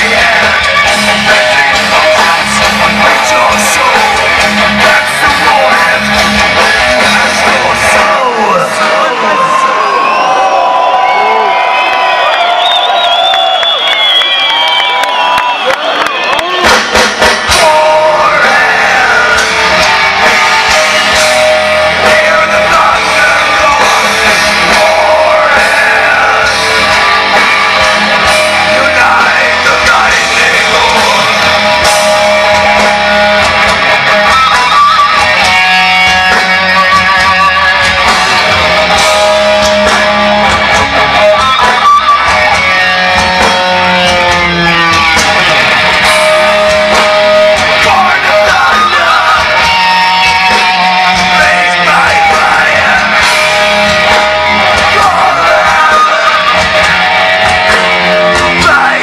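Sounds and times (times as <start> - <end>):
heavy metal band playing live: 0.0 - 12.3, 15.5 - 59.0
shouted vocals: 0.0 - 16.8, 17.5 - 59.0.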